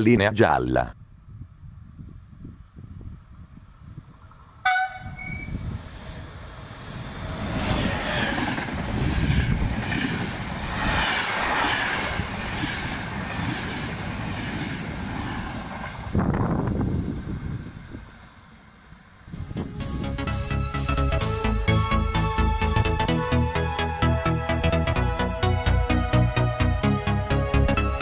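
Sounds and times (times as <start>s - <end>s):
train horn blast: 4.6s - 5.6s.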